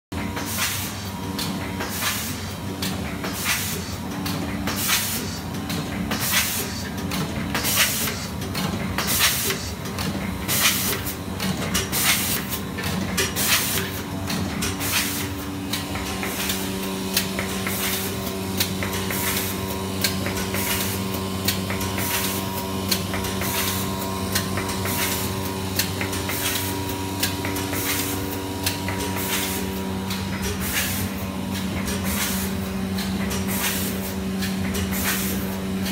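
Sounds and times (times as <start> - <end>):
packing machine sharp strokes: 3.2 - 4.0, 11.8 - 35.9
machine hum: 8.3 - 35.9.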